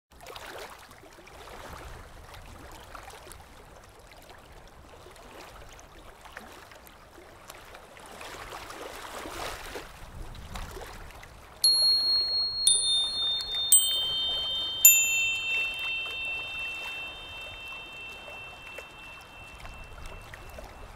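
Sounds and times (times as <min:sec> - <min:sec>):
ringing chime notes: 0:11.7 - 0:20.9.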